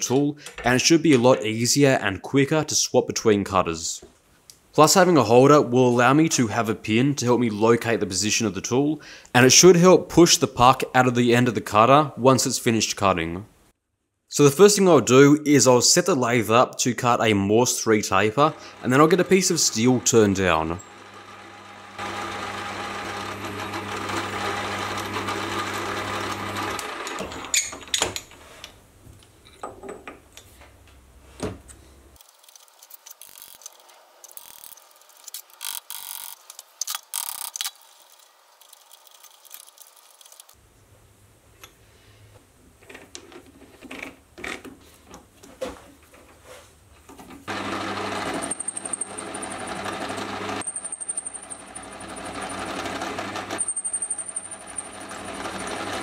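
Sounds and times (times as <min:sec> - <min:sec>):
metal lathe running: 0:18.4 - 0:27.6, 0:47.5 - 0:56.0.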